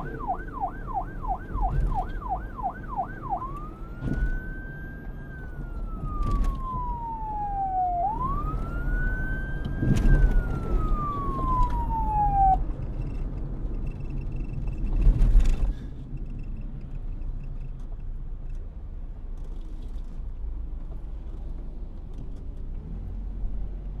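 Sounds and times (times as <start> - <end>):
police siren wailing: 0.0 - 12.8.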